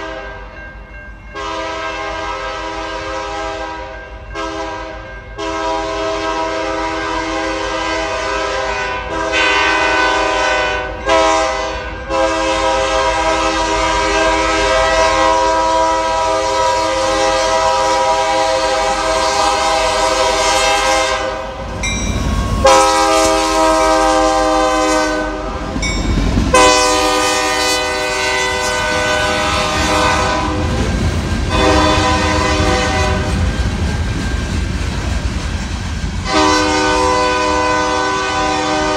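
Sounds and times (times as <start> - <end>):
locomotive air horn blasts: 1.4 - 21.6, 22.5 - 25.8, 26.5 - 30.8, 31.5 - 33.4, 36.2 - 38.9
freight cars rumbling and clacking: 29.8 - 36.3.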